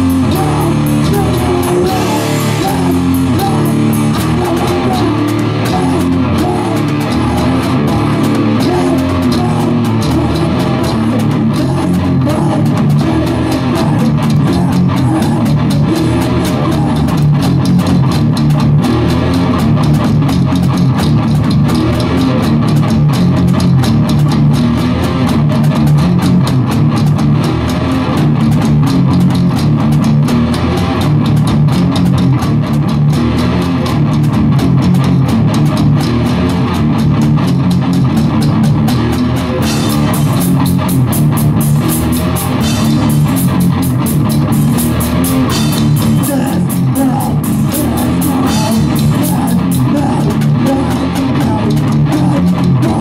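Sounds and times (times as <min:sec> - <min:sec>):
fast cymbal hits: 0:00.0 - 0:11.4, 0:39.0 - 0:51.9
bass guitar: 0:00.0 - 0:53.0
distorted electric guitars: 0:00.0 - 0:53.0
drum kit: 0:00.0 - 0:53.0.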